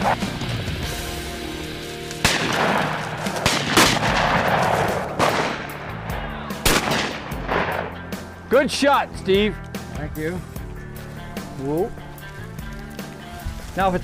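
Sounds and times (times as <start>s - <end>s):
shotgun shots: 2.2s - 6.0s, 6.6s - 8.1s.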